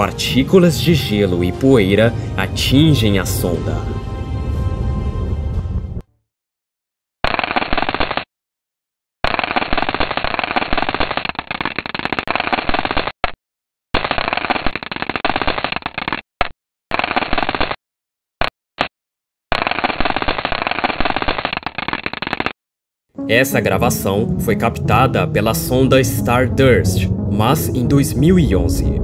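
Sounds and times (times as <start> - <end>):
dense rapid crackle: 7.2 - 8.3, 9.2 - 13.4, 14.0 - 17.8, 19.5 - 22.6.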